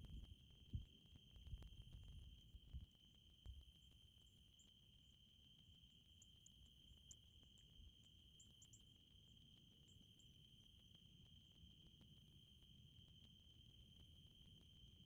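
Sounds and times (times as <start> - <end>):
high-pitched insect trill: 3.7 - 10.8.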